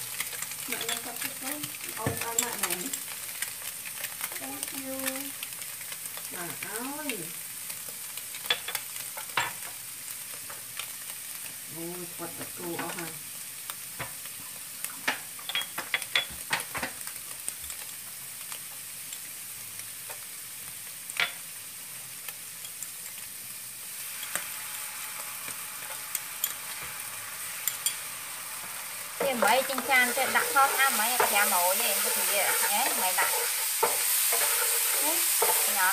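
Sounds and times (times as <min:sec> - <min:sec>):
fried rice sizzling in pan: 0:00.0 - 0:35.9
utensils clicking and tapping: 0:29.2 - 0:35.9.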